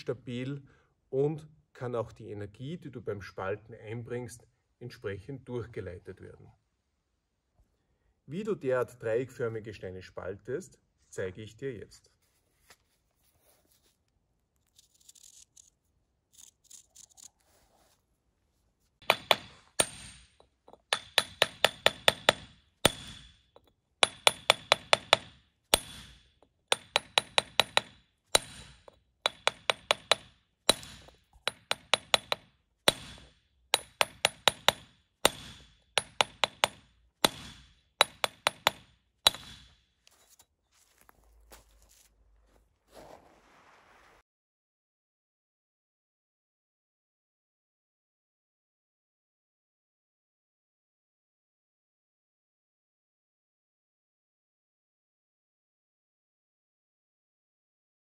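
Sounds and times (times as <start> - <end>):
hammer striking steel on stone: 19.0 - 39.9.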